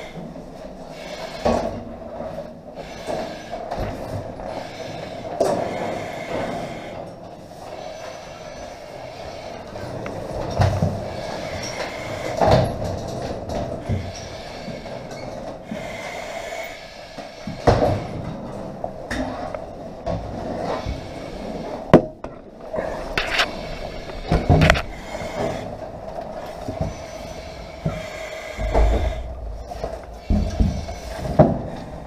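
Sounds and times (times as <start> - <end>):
steady noise: 15.6 - 32.0.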